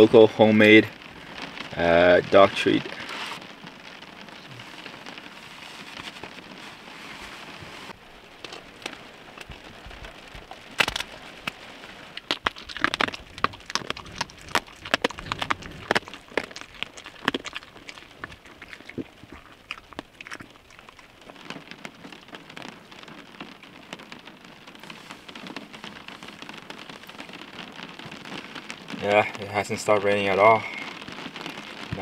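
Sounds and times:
rain on a car roof: 0.0s - 32.0s
dog chewing a treat: 12.2s - 21.6s.

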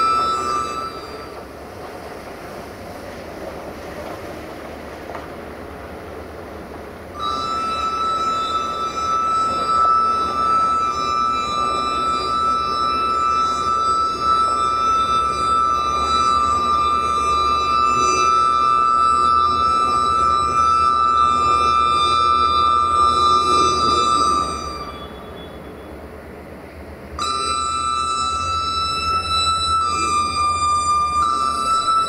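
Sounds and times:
diesel engine low rumble: 0.0s - 32.0s
locomotive horn two-note blast: 7.2s - 26.0s, 27.2s - 32.0s.

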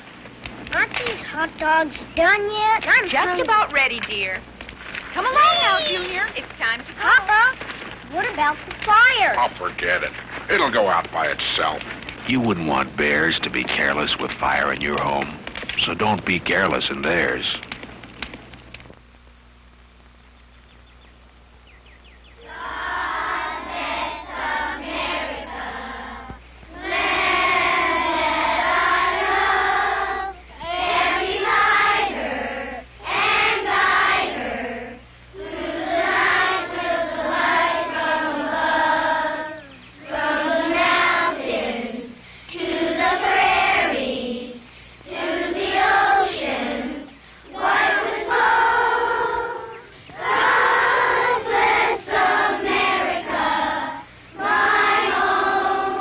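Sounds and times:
faint low hum: 0.0s - 56.0s
children's choir singing: 22.4s - 56.0s.

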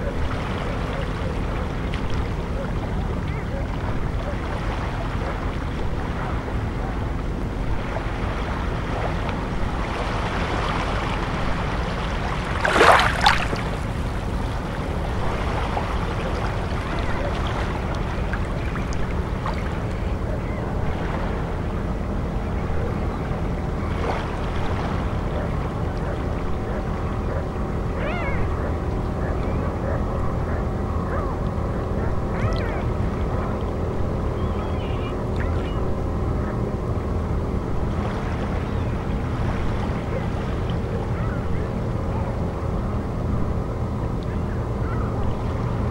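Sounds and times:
steady low rumble: 0.0s - 45.9s
water lapping on pebble shore: 12.1s - 14.0s
sharp splash: 12.4s - 13.8s.

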